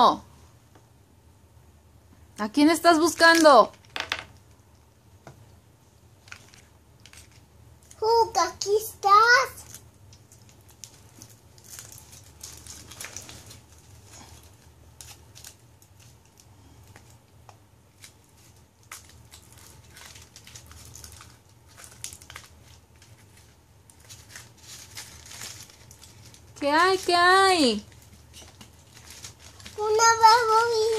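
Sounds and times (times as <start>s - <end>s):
foil and plastic crinkling: 6.2s - 8.2s, 9.5s - 17.3s, 17.9s - 30.9s.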